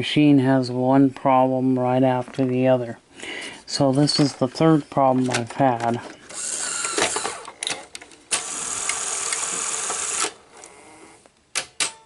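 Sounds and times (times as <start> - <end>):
motor whir: 6.3 - 7.5, 8.3 - 11.2.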